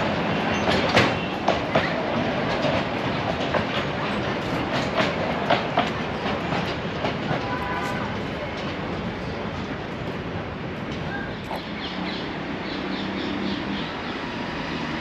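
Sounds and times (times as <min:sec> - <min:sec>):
wheels clicking over rail joints: 0:00.0 - 0:11.8.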